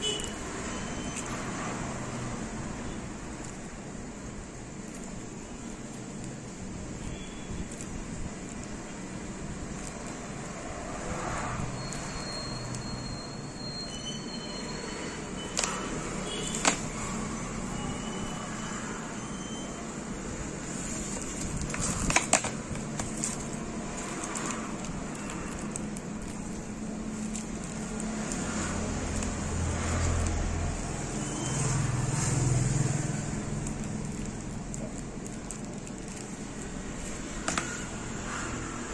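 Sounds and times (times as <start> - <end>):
steady background noise: 0.0 - 38.9.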